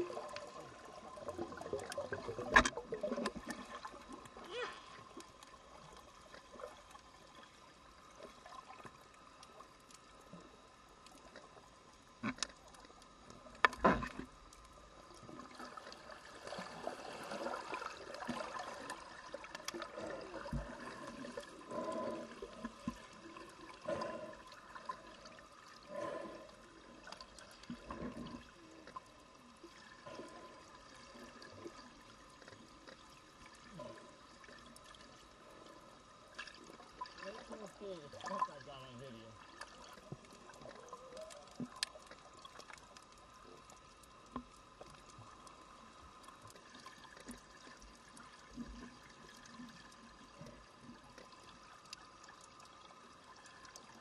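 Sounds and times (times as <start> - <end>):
muffled underwater water noise: 0.0 - 54.0
water bubbling and gurgling: 0.0 - 54.0.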